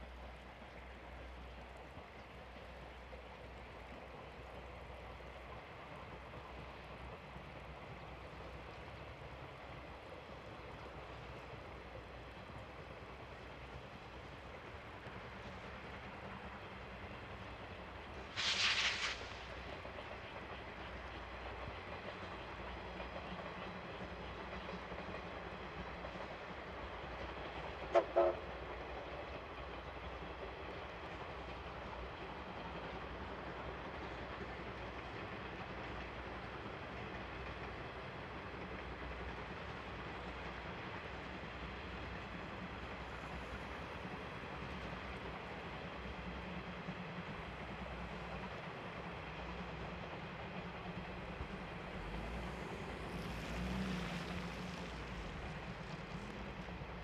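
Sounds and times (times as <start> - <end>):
distant steam train running: 0.0 - 57.0
steam whistle blast: 27.9 - 28.4.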